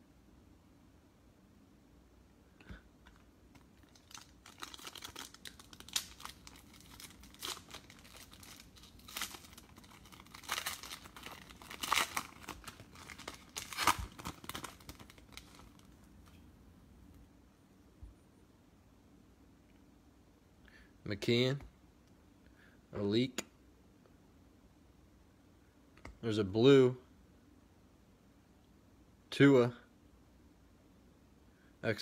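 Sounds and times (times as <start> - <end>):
foil wrapper tearing and crinkling: 3.6 - 15.9.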